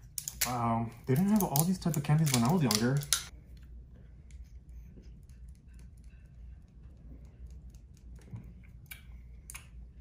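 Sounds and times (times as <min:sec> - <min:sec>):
plastic crackling and clicking: 0:00.2 - 0:03.3.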